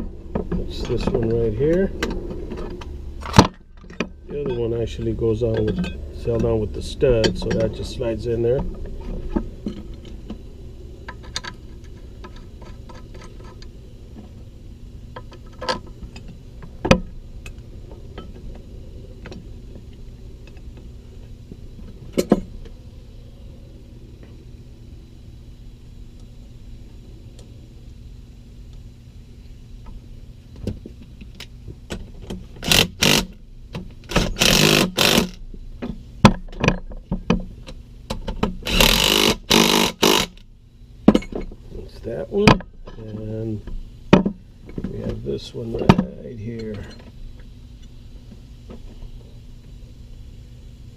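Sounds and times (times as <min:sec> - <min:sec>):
steady low hum: 0:00.0 - 0:50.9
power tool bursts: 0:32.6 - 0:33.4, 0:34.1 - 0:35.4, 0:38.6 - 0:40.4.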